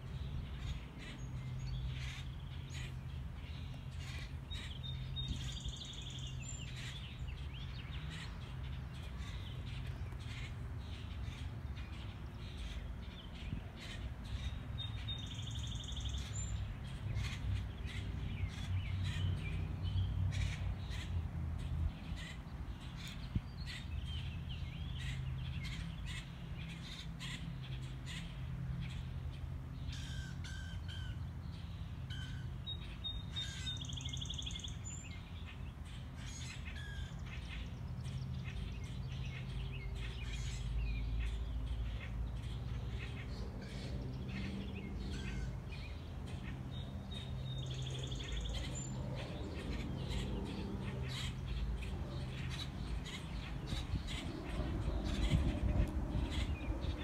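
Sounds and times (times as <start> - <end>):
birds chirping: 0.0 - 57.0
steady low rumble: 47.9 - 57.0.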